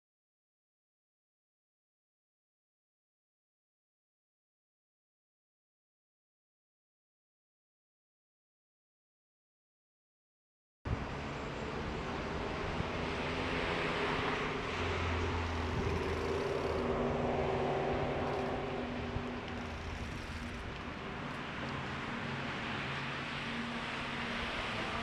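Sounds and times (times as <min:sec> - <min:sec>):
wind rush: 0:11.9 - 0:21.2
bicycle tyre noise on paving: 0:12.4 - 0:25.0.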